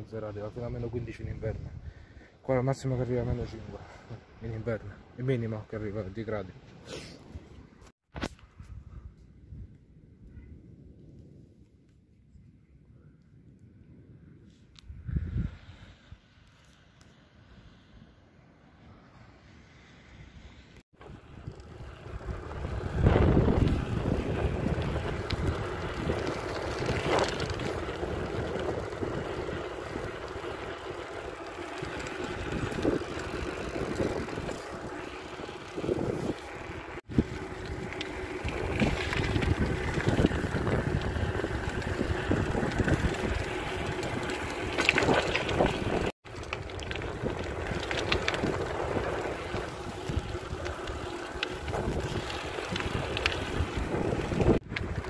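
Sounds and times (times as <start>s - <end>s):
wind buffeting microphone: 0.5s - 2.1s, 14.8s - 15.9s, 21.0s - 55.0s
tyre and road rumble: 21.0s - 55.0s.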